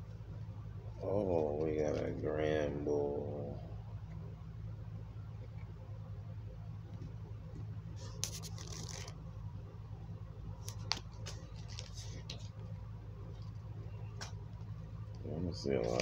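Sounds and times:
steady low hum: 0.0 - 16.0
trading cards rustling and clicking: 8.0 - 9.1, 10.6 - 12.6.

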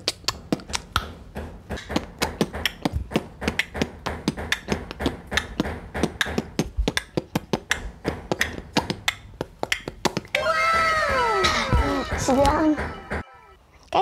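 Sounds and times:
boy beatboxing: 0.0 - 1.2, 1.8 - 10.4.

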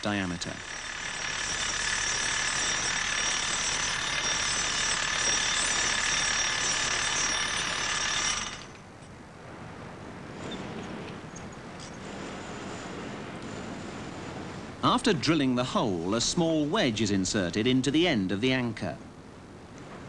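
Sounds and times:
hammer drill drilling concrete: 0.0 - 8.8.

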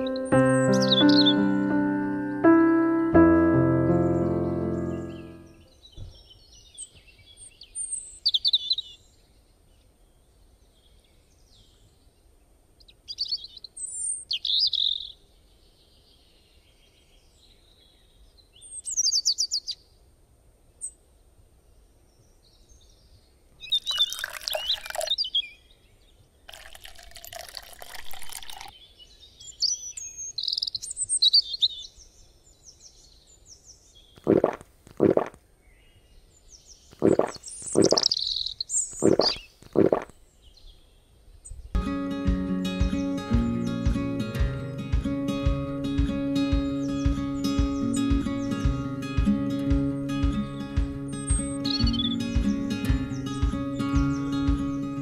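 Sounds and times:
birds chirping and trilling: 0.0 - 2.4, 4.0 - 9.4, 23.6 - 25.8, 28.5 - 41.7, 46.3 - 55.0
water pouring from bucket: 23.7 - 25.2, 26.5 - 28.7, 37.0 - 38.1.

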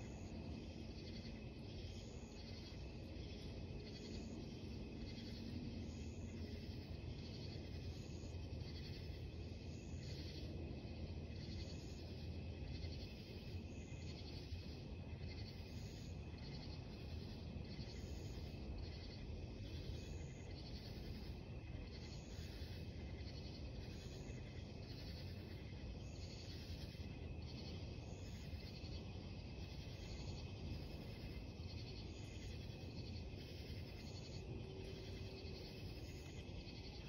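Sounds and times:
night insects calling: 0.0 - 37.0.

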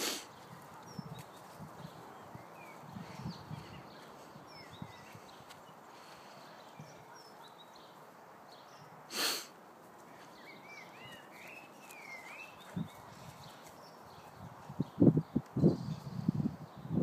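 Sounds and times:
faint birdsong: 0.0 - 17.0
loud burst of breathy noise: 9.1 - 9.5.

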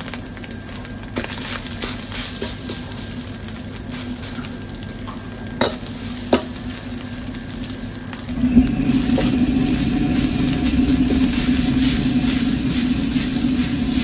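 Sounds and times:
rice sizzling in a wok: 0.0 - 14.0
low steady rumble: 8.0 - 14.0.

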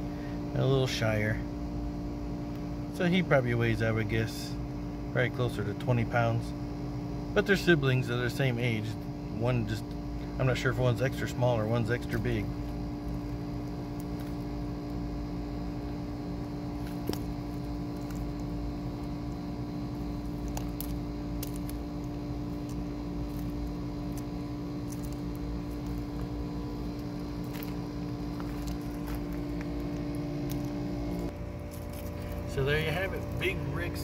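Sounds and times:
machine hum: 0.0 - 34.0
tortoise biting sharp clicks: 20.2 - 24.3.

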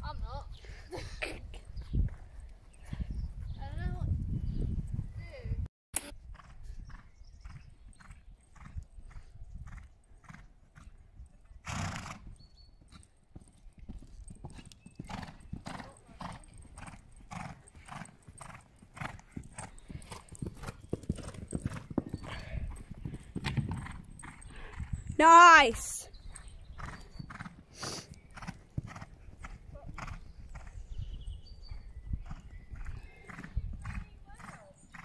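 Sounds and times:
horse hoofbeats on sand: 11.7 - 24.9, 25.7 - 30.8, 31.6 - 35.0.

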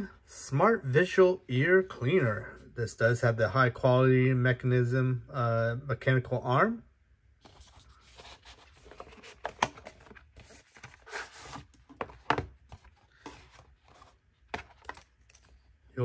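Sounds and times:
cardboard rubbing and scraping: 7.5 - 14.2.

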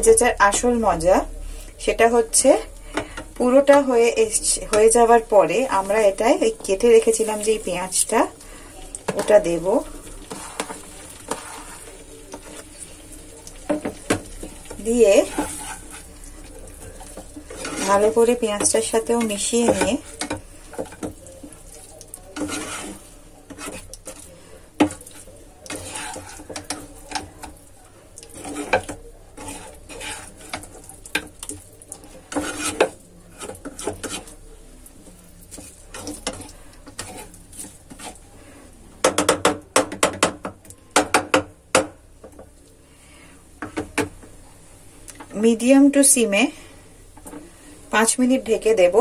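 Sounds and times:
spatula scraping frying pan: 0.0 - 27.6, 28.2 - 34.4, 35.3 - 40.3.

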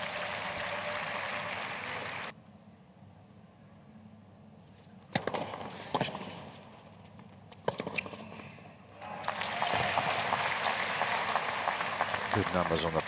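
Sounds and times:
crowd applause: 0.0 - 2.3, 9.0 - 13.0.

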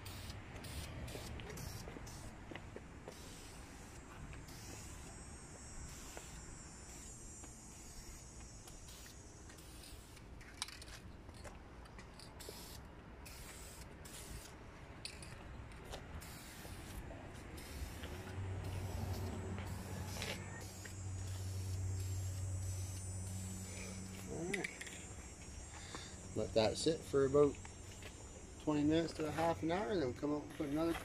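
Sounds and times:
aerosol spray can hissing: 0.0 - 2.4, 3.1 - 10.9, 12.4 - 14.6, 16.2 - 29.6
sharp click: 24.5 - 25.1.

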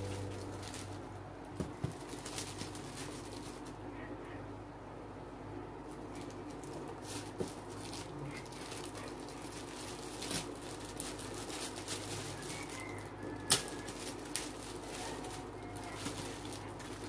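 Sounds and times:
plastic wrap crinkling: 0.0 - 3.8, 5.8 - 17.0.

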